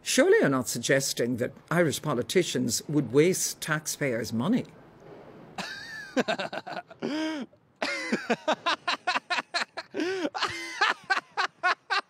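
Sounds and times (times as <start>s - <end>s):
man laughing hard: 5.6s - 12.0s.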